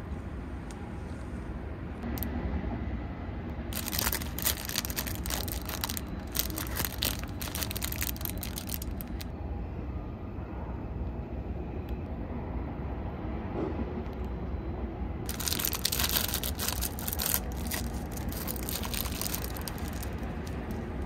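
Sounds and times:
steady low hum: 0.0 - 21.0
plastic packaging crinkling: 3.7 - 9.3, 15.3 - 21.0.

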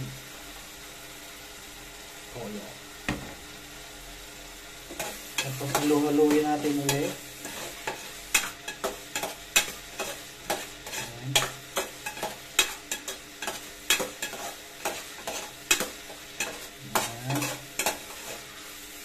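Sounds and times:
meat sizzling in a pot: 0.0 - 19.0
metal spatula scraping a pot: 4.9 - 18.6.

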